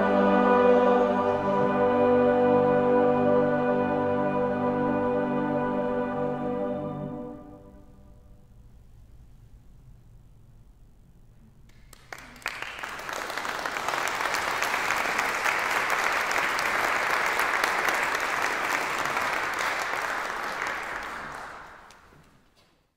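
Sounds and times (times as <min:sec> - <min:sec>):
audience applause: 0:11.7 - 0:22.2.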